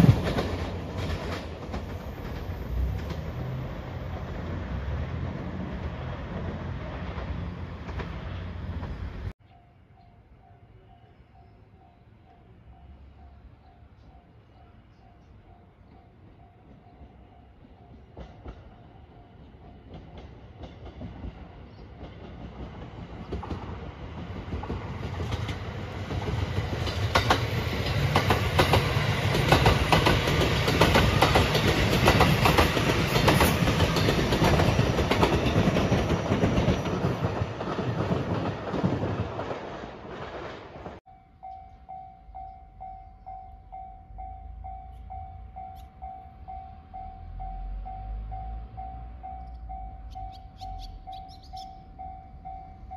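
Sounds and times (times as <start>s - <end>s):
wheels clacking over rail joints: 0.0s - 9.3s, 19.7s - 41.0s
electric train passing: 0.0s - 52.9s.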